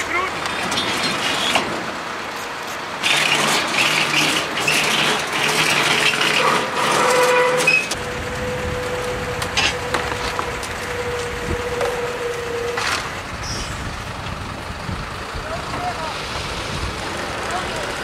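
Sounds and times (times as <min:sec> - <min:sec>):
steady winch hum: 0:00.0 - 0:18.0
winch rattling and scraping: 0:00.1 - 0:14.4.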